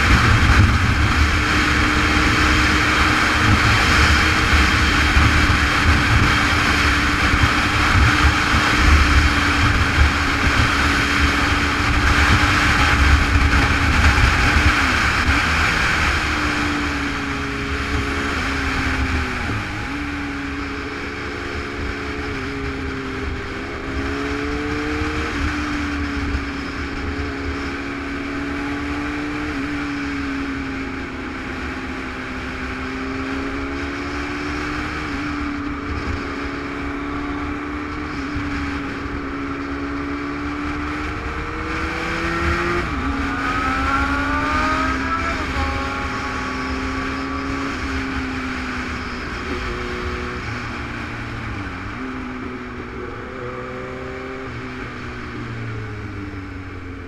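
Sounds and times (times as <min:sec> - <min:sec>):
motorcycle engine revving: 0:00.0 - 0:57.0
wind rushing on helmet: 0:00.0 - 0:57.0.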